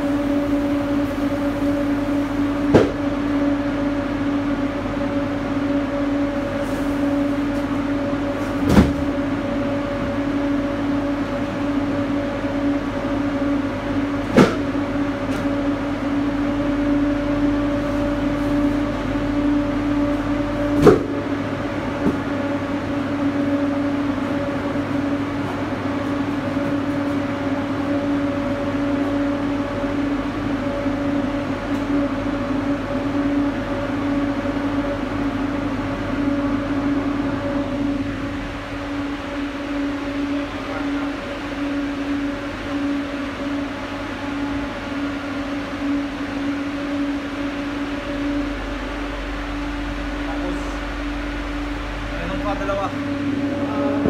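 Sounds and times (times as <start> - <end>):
cooling unit two-tone hum: 0.0 - 54.0
sharp knocks of cartons: 2.7 - 3.1.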